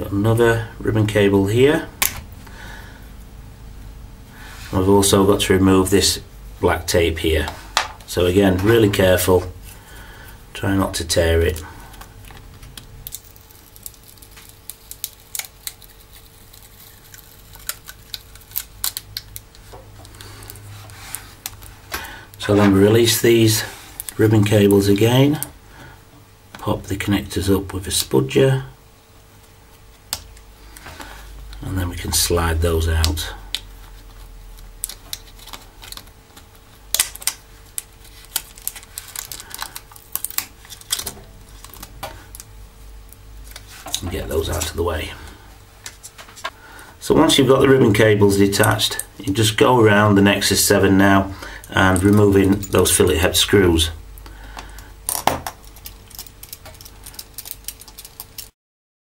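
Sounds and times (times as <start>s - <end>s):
faint steady hum: 0.0s - 58.5s
tape peeling crackles: 11.4s - 23.1s, 23.8s - 25.5s, 32.6s - 42.5s, 55.1s - 58.5s.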